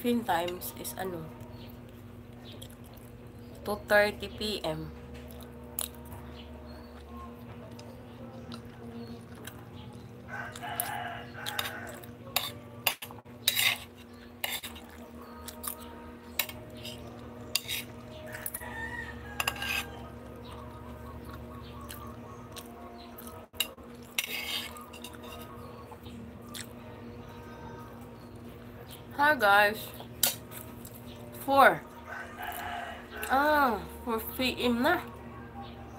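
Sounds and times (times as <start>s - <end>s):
low hum: 0.0s - 35.9s
spoon scraping ceramic plate: 11.5s - 14.9s, 16.4s - 18.6s, 19.3s - 20.1s, 23.6s - 25.7s.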